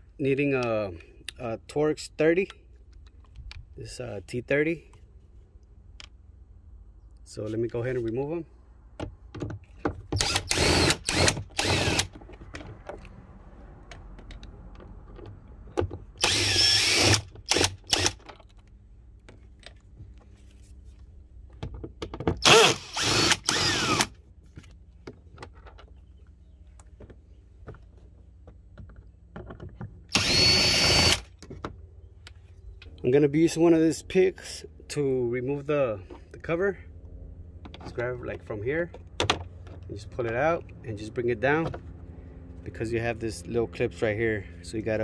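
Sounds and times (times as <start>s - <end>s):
power drill motor running: 10.2s - 12.1s, 16.2s - 18.2s, 22.4s - 24.1s, 30.1s - 31.3s.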